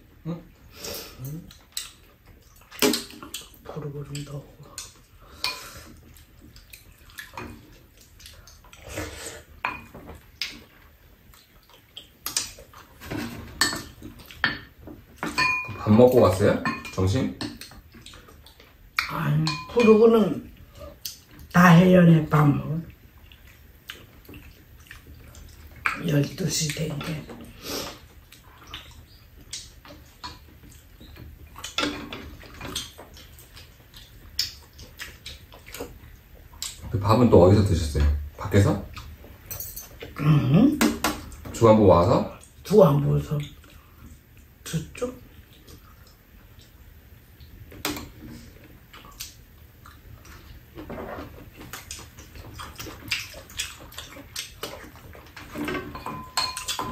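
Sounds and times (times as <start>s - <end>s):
wet chewing: 1.1s - 13.2s, 17.4s - 19.1s, 22.8s - 36.9s, 43.4s - 56.9s
chopsticks and spoons clinking bowls: 12.3s - 17.8s, 19.0s - 20.3s, 39.4s - 41.6s, 52.6s - 56.9s
chopsticks tapping bowls: 14.4s - 15.8s, 19.0s - 20.0s, 55.5s - 56.9s.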